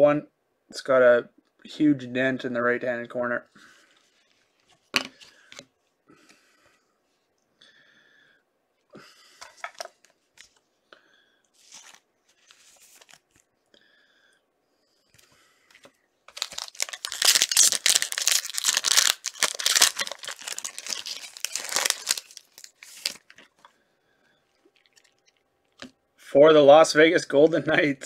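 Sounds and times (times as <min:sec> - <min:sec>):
wrapper tearing and crinkling: 0:11.6 - 0:13.4, 0:16.3 - 0:23.6, 0:24.7 - 0:25.9
cards rustling: 0:11.6 - 0:13.5, 0:15.7 - 0:23.7.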